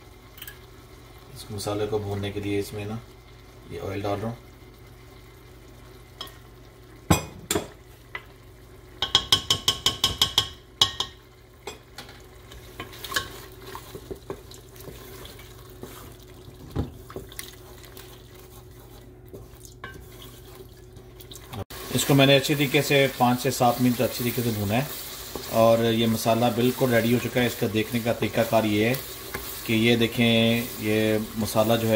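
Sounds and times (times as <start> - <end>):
faint sizzle of frying: 0.0 - 31.9
spatula knocking against pot: 9.0 - 11.2
wooden spatula scraping pot: 12.6 - 16.2, 16.9 - 21.1, 23.8 - 31.9.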